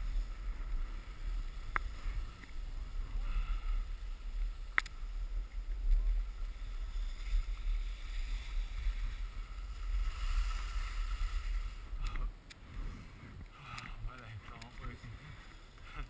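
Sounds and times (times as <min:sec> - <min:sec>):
skis hissing over snow: 0:00.0 - 0:12.0
wind rumbling on microphone: 0:00.0 - 0:16.0.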